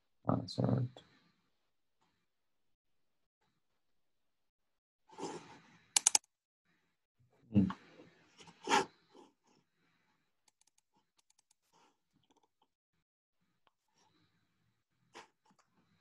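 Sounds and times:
keyboard key taps: 0:06.0 - 0:06.2
mouse clicks: 0:06.0 - 0:06.2.

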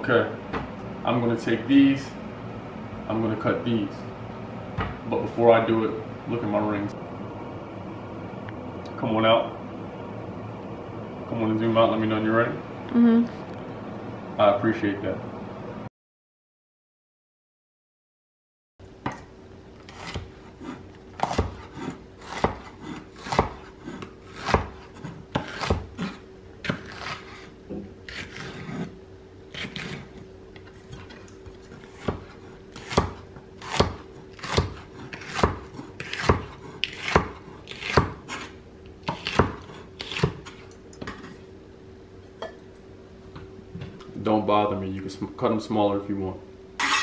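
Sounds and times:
kitchen knife chopping food: 0:19.8 - 0:28.9, 0:30.9 - 0:40.6.

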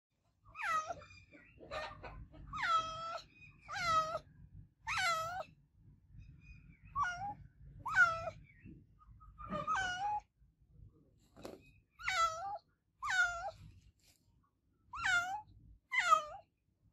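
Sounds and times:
cat meowing: 0:00.5 - 0:01.1, 0:02.5 - 0:04.2, 0:04.9 - 0:05.5, 0:06.9 - 0:08.4, 0:09.4 - 0:10.2, 0:12.0 - 0:13.6, 0:15.0 - 0:16.5.

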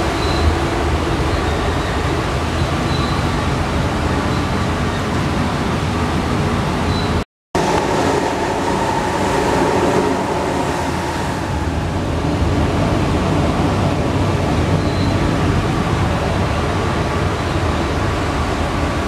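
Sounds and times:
metro train running noise: 0:00.0 - 0:19.0
faint train whine: 0:06.8 - 0:19.0.

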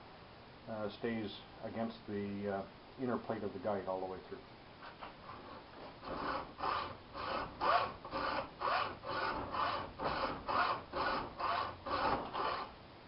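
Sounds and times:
hacksaw cutting steel tube: 0:06.0 - 0:12.7.

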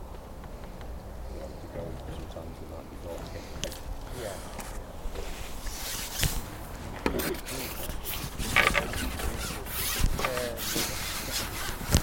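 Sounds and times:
handling noise rustling and scraping: 0:03.1 - 0:12.0.

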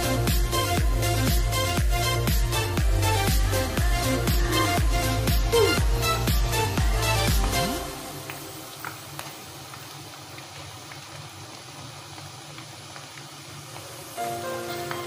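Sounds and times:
background music: 0:00.0 - 0:09.1, 0:14.2 - 0:15.0
chicken frying in hot oil: 0:07.8 - 0:15.0.

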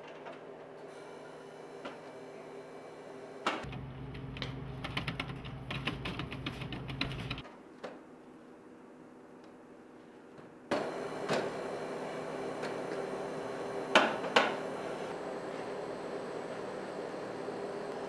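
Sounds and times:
steady hum: 0:00.9 - 0:07.4.

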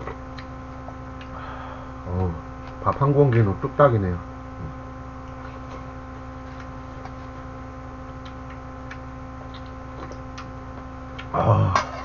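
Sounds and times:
electrical mains hum: 0:00.0 - 0:12.0
mouth eating sounds: 0:08.1 - 0:11.9.

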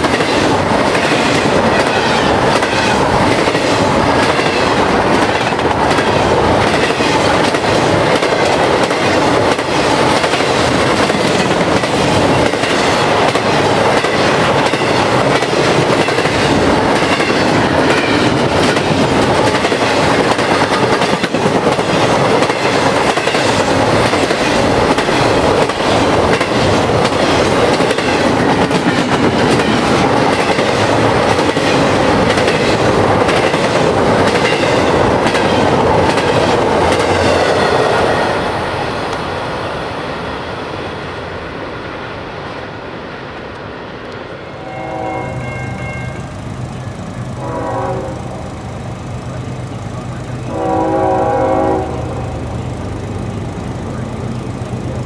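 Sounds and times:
wheels clacking over rail joints: 0:00.0 - 0:38.3
train wheels rumbling on rail: 0:00.0 - 0:55.0.

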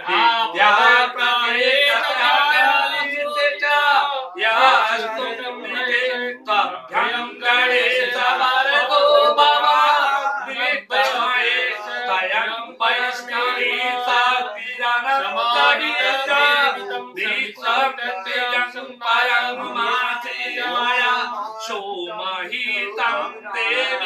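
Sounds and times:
man chanting: 0:00.0 - 0:24.0.

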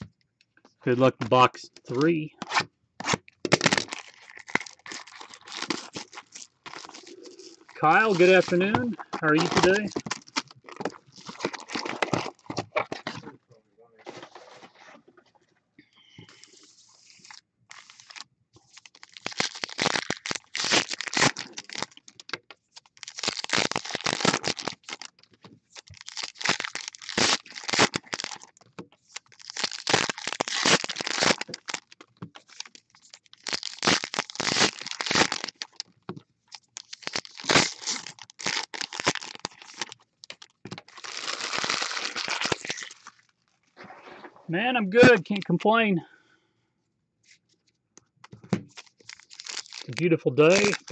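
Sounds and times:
foil wrappers tearing and crinkling: 0:02.0 - 0:13.2, 0:16.4 - 0:35.9, 0:36.5 - 0:43.4, 0:48.7 - 0:50.9.

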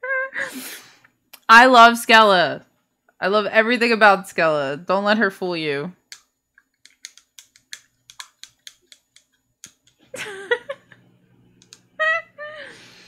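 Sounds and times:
computer keyboard keys clicking: 0:06.9 - 0:10.0.

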